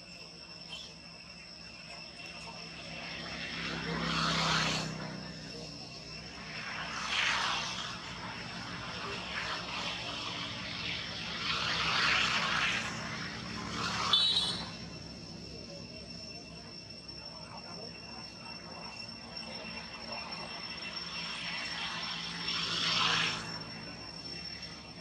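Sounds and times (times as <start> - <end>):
insects chirring: 0.0 - 25.0
broad rushing noise: 2.2 - 25.0
sharp high squeak: 14.1 - 15.4.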